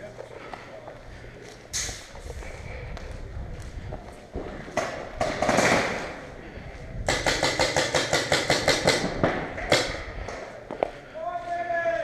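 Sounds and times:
paintball marker rapid firing: 0:07.0 - 0:10.1.

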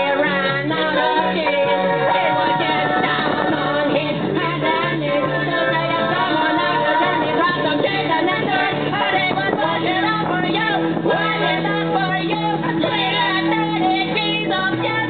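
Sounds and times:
person singing: 0:00.0 - 0:15.0
repeating bass line: 0:00.0 - 0:15.0.

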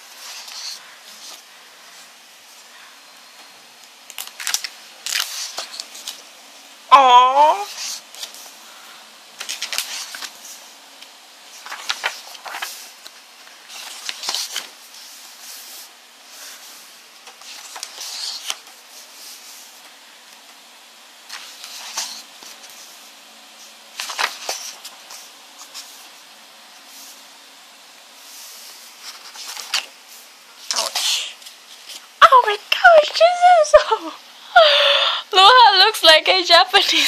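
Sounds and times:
paper rustle: 0:00.0 - 0:02.0, 0:04.1 - 0:06.3, 0:07.6 - 0:08.8, 0:09.4 - 0:10.7, 0:11.5 - 0:20.0, 0:21.2 - 0:26.2, 0:28.3 - 0:32.1
book pages turning: 0:00.1 - 0:01.4, 0:04.0 - 0:06.2, 0:07.7 - 0:08.5, 0:09.4 - 0:10.7, 0:11.5 - 0:20.6, 0:21.3 - 0:23.0, 0:23.6 - 0:26.1, 0:28.4 - 0:30.0.

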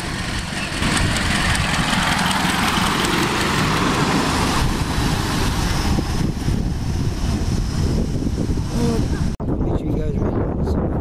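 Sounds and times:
miniature steam train rushing: 0:00.0 - 0:06.2
wheels rumbling on rail: 0:00.0 - 0:09.6.

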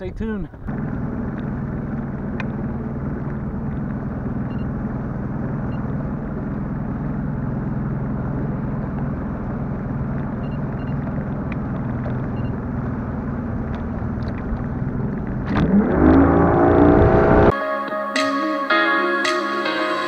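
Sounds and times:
outboard motor running: 0:00.5 - 0:17.5
loud rising tone: 0:14.7 - 0:17.5.

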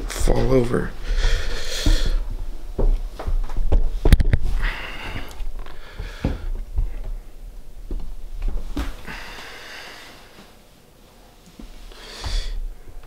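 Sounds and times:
person sniffing and breathing: 0:01.0 - 0:02.3, 0:11.8 - 0:12.8.

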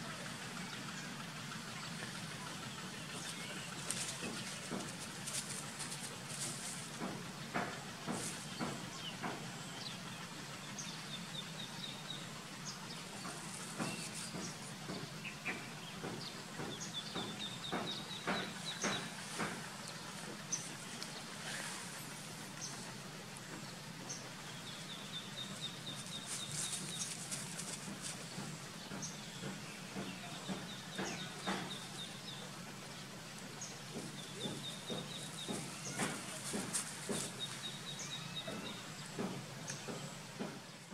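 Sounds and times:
small birds chirping: 0:00.0 - 0:40.9
light clicks and rustles: 0:01.9 - 0:09.5, 0:25.8 - 0:32.6, 0:33.3 - 0:40.8.

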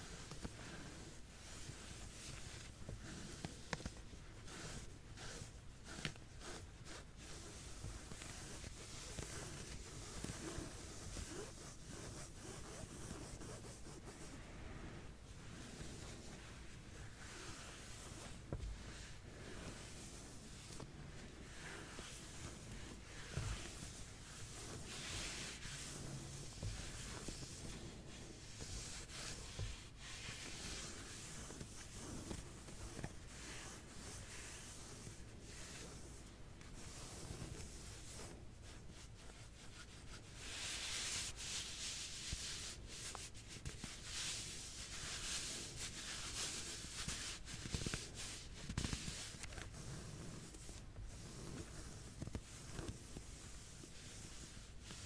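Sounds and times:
scratching and rubbing on back: 0:00.0 - 0:55.0.

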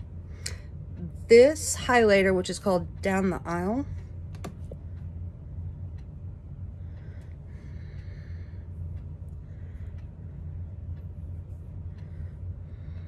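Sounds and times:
steady low hum: 0:00.0 - 0:13.0
person breathing softly: 0:06.6 - 0:10.9, 0:11.5 - 0:13.0.

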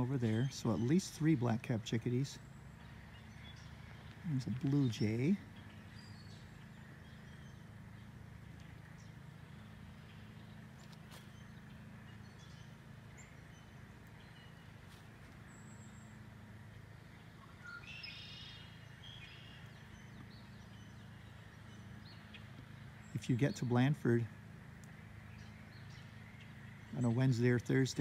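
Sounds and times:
birds chirping faintly: 0:00.0 - 0:28.0
steady low hum: 0:00.0 - 0:28.0
loud bird call: 0:17.2 - 0:24.3.

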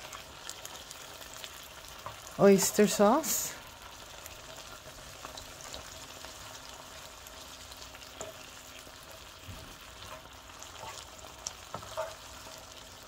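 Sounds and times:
meat sizzling in skillet: 0:00.0 - 0:13.0
spatula scraping pan: 0:10.0 - 0:12.8.

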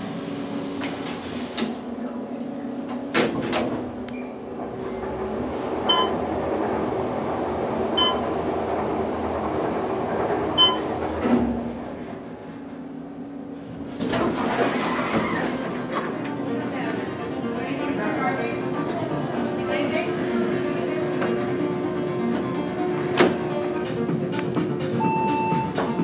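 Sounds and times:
elevator rumble and hum: 0:00.0 - 0:26.0
elevator doors shutting thump: 0:02.8 - 0:06.4, 0:07.8 - 0:12.9, 0:13.7 - 0:16.4, 0:20.6 - 0:26.0
short beeps: 0:05.9 - 0:06.2, 0:10.6 - 0:10.8, 0:25.0 - 0:25.8.

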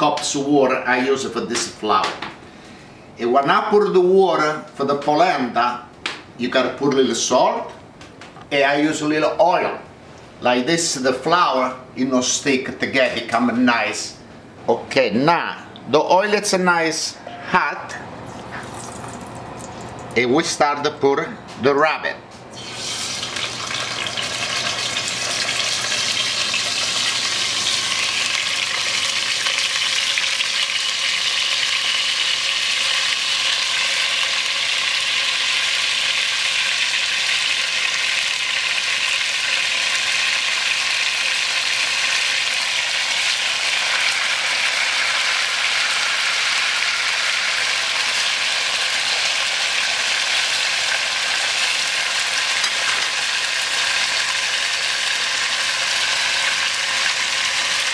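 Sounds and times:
meat sizzling in hot oil: 0:22.5 - 0:57.9.

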